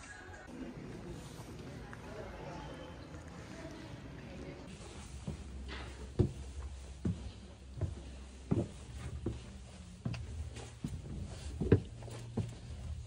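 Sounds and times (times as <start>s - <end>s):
footsteps on stone steps: 4.7s - 13.0s.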